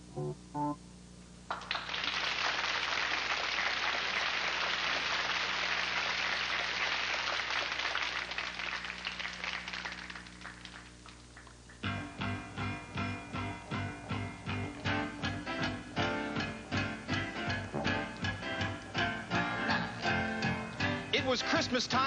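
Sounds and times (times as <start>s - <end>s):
audience applauding: 1.5s - 11.9s.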